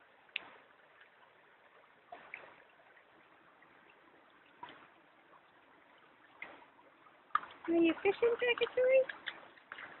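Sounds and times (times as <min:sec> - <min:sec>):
stream trickling: 0:00.0 - 0:10.0.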